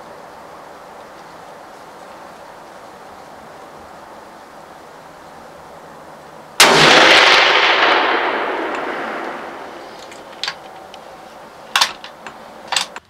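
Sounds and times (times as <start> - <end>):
rifle shot with echo: 6.6 - 11.2.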